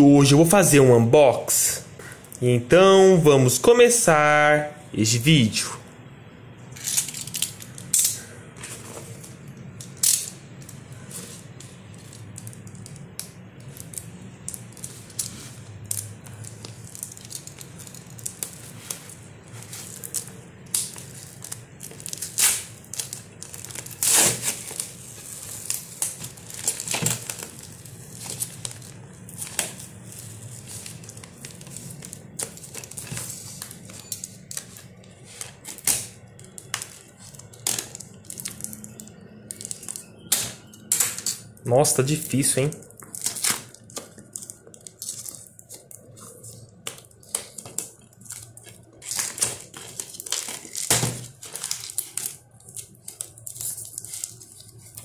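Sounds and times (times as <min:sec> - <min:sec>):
paper wrapping tearing: 0:11.0 - 0:34.6, 0:43.1 - 0:55.0
box cutter slitting tape: 0:23.9 - 0:24.8.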